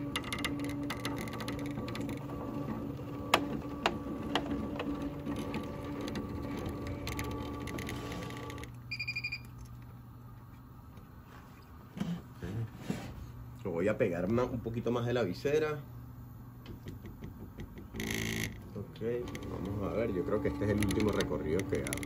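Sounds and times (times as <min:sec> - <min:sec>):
embroidery machine humming and clicking: 0:00.0 - 0:11.2, 0:16.1 - 0:22.0
quick beeps: 0:08.9 - 0:09.5.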